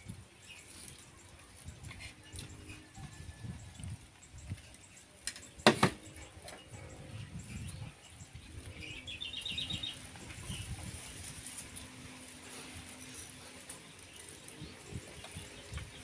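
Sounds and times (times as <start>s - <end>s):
bird chirping: 3.8s - 11.0s.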